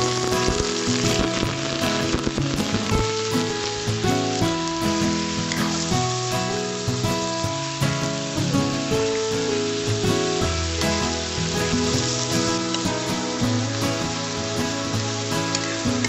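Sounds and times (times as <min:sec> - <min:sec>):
background music with held notes: 0:00.0 - 0:16.0
chicken sizzling in hot oil: 0:00.0 - 0:16.0.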